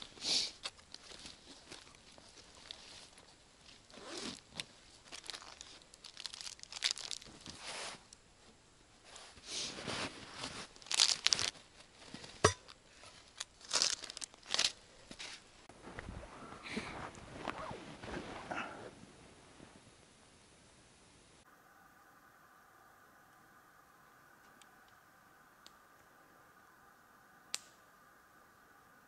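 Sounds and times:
dry brush crunching and rustling: 0:00.0 - 0:08.0, 0:10.2 - 0:15.5
sharp snap: 0:27.5 - 0:27.8.

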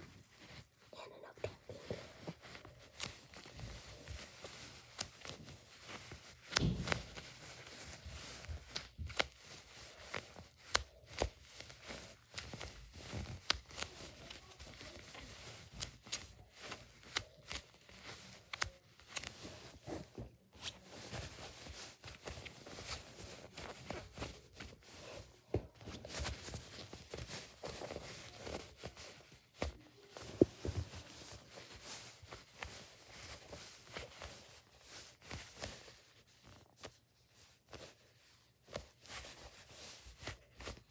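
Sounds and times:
fabric rustling and scratching: 0:00.0 - 0:40.9.

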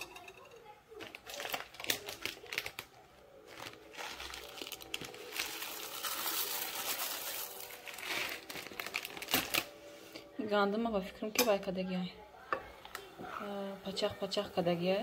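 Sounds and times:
plastic bag crinkling: 0:01.0 - 0:09.8
oats pouring into a pot: 0:03.5 - 0:09.6.

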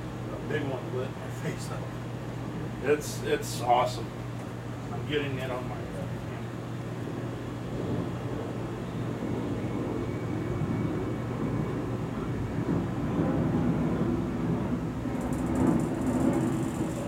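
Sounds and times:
thunder rumbling: 0:04.0 - 0:17.0.

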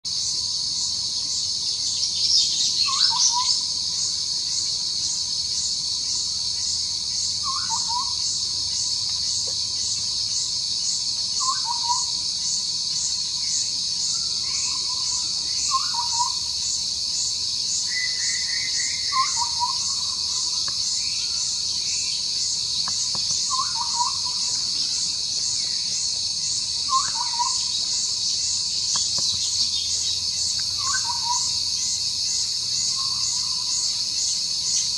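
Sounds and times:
shrill insect chorus: 0:00.1 - 0:34.9.

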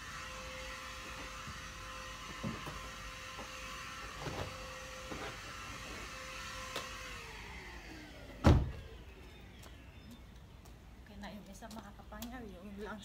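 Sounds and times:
handheld vacuum cleaner whining: 0:00.0 - 0:09.6
car door thump: 0:08.4 - 0:08.8.

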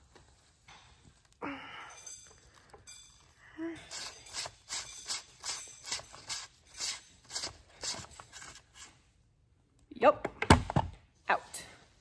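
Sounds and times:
metal scraping and clicking: 0:03.9 - 0:08.9.

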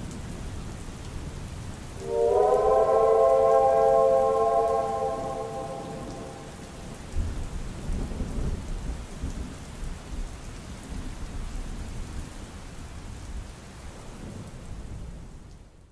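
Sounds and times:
steady rain: 0:00.0 - 0:15.9
thunder rumbling: 0:02.0 - 0:08.7.

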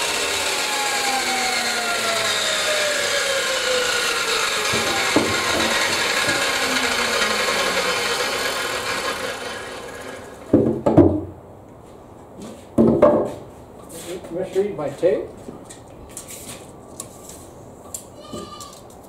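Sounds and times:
saw motor whine coasting down: 0:00.0 - 0:10.5
wood knocks: 0:04.7 - 0:06.4, 0:10.5 - 0:11.3, 0:12.8 - 0:13.4.

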